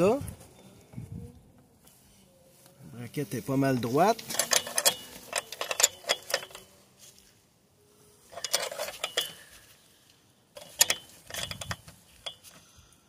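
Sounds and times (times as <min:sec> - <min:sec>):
wrenches clinking on metal: 0:04.2 - 0:06.8, 0:08.3 - 0:09.6, 0:10.6 - 0:12.6.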